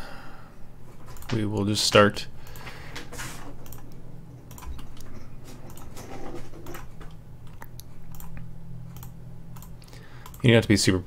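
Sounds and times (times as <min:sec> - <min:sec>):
low steady hum: 0:00.0 - 0:11.0
computer mouse clicking: 0:01.1 - 0:01.4, 0:03.6 - 0:10.5.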